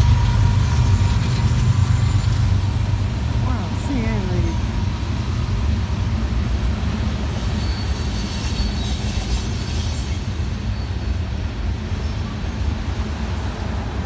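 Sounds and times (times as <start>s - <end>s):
distant train rumbling: 0.0s - 14.0s
faint high squeal: 7.3s - 11.2s.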